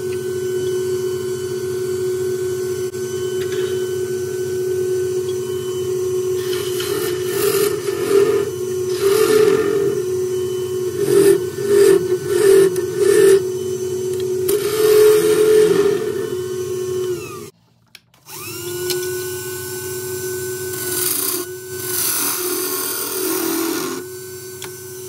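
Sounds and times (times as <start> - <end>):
wood lathe humming: 0.0 - 17.5, 18.3 - 25.0
turning tool scraping wood: 6.4 - 10.1, 10.9 - 13.5.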